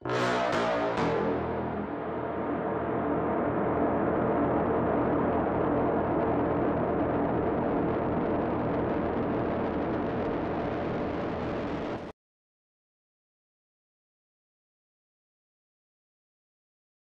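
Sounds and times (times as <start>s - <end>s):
droning soundtrack with low tones: 0.0s - 12.1s.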